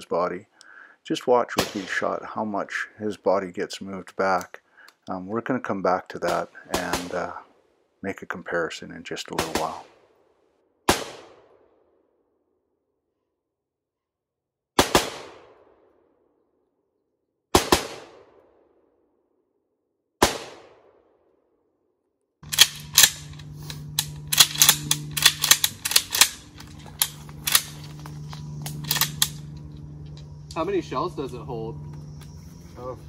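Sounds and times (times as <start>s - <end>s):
rifle shots with echo: 1.6s - 2.2s, 6.3s - 7.4s, 9.4s - 10.1s, 10.9s - 11.7s, 14.8s - 15.9s, 17.5s - 18.6s, 20.2s - 21.2s, 22.4s - 27.8s, 28.7s - 29.5s
steady low hum: 22.4s - 33.0s.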